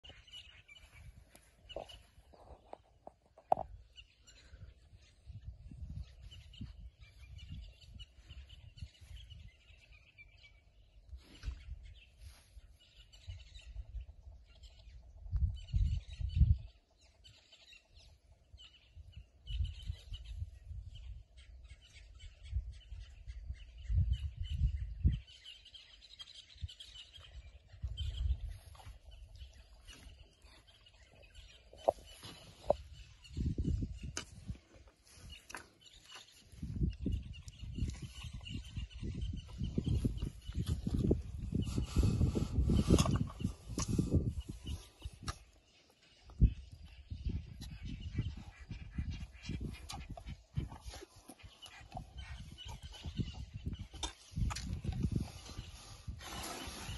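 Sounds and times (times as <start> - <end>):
birds chirping: 0.0 - 56.9
low rumbles near microphone: 36.5 - 45.2.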